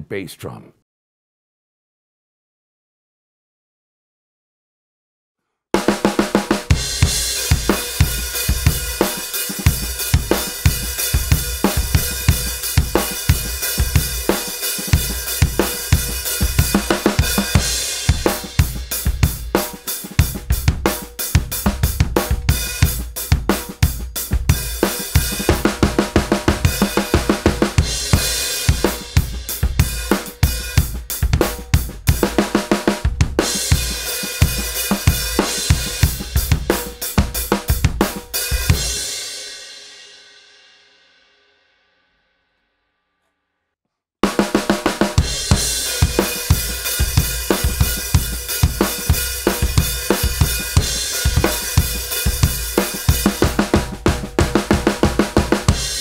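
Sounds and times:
snare drum backbeats: 5.8s - 39.1s, 44.2s - 56.0s
hi-hat and cymbals: 6.7s - 32.3s, 33.4s - 39.2s, 45.2s - 54.4s.

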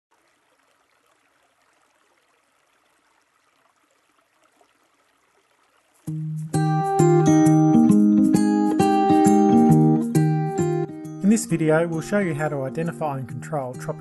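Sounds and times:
acoustic guitar music: 6.1s - 14.0s.

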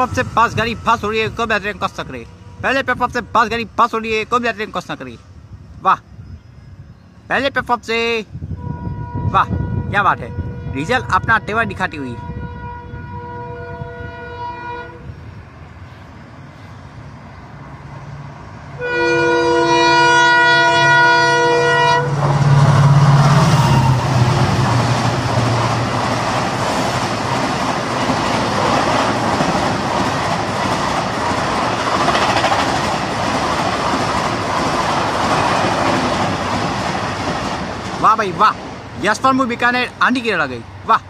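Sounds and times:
locomotive horn blasts: 8.5s - 15.2s, 18.8s - 22.2s
train wheels clattering over rail joints: 24.6s - 38.7s.

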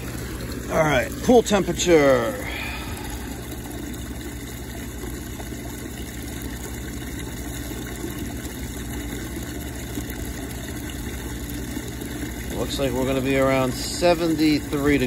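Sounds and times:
pool pump humming: 0.0s - 15.0s
water circulating: 0.0s - 15.0s.

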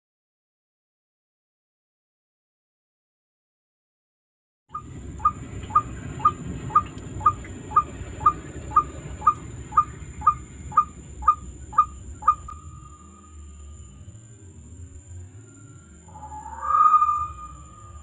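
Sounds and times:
electronic heart monitor beeps: 4.8s - 13.2s.

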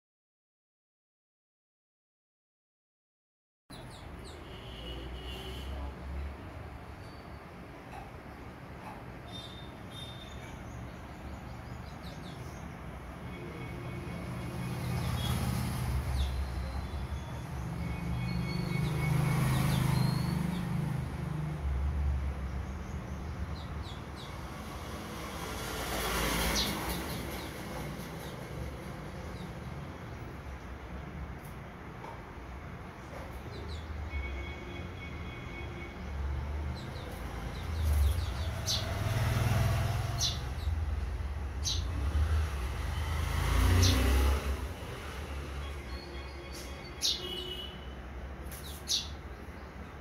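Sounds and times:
sparrow chirps: 3.7s - 5.6s, 8.8s - 13.0s, 14.6s - 20.9s, 22.4s - 24.6s, 26.4s - 28.5s, 36.7s - 39.0s, 40.0s - 42.1s, 45.6s - 49.8s.

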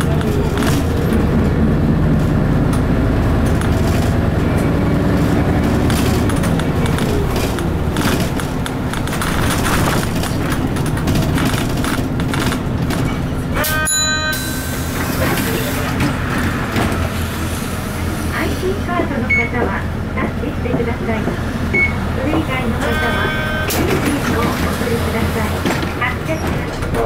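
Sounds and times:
bus diesel engine running: 0.0s - 27.0s
road noise: 0.0s - 27.0s.

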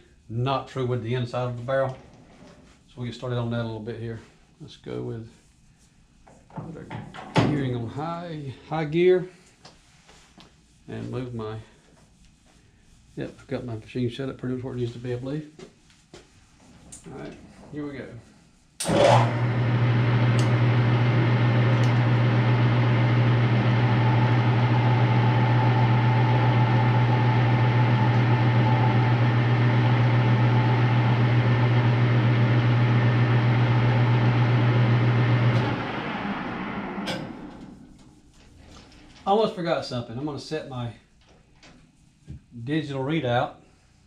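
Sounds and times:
lathe winding down: 18.8s - 38.1s
metal lathe humming: 18.8s - 38.2s.

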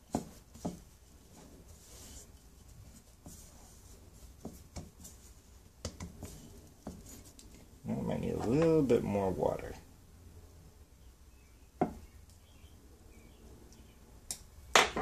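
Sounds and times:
hands mixing dough rustling: 0.0s - 9.9s.

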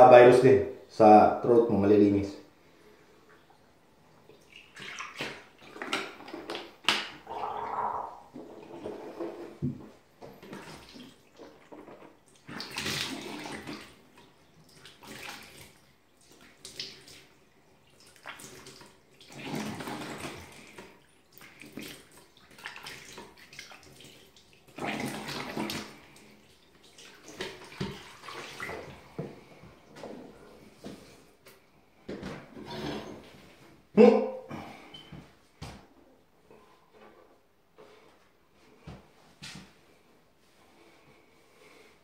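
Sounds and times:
tap water splashing into sink: 26.8s - 29.4s.

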